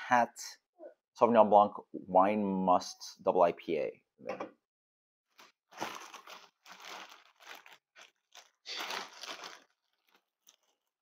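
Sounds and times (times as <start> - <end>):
plastic bag crinkling: 5.3 - 11.0.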